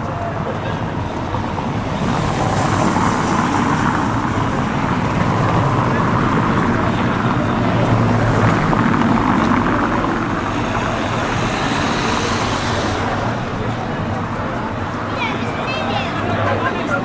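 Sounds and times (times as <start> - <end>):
car traffic driving past: 0.1 - 17.0.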